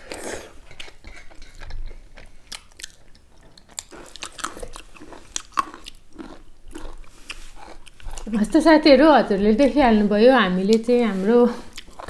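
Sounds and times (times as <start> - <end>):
people chewing wetly: 0.0 - 8.5, 11.6 - 12.0.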